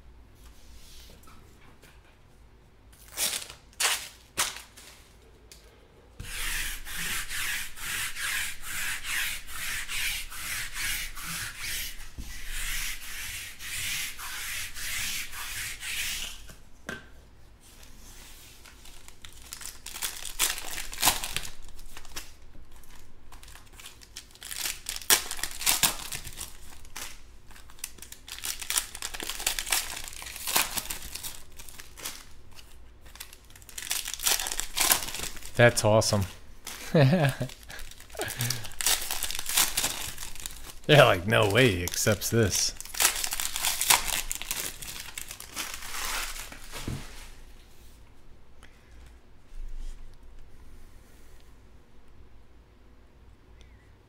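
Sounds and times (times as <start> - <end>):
foil pack crinkling and tearing: 3.0 - 5.2, 18.6 - 46.9.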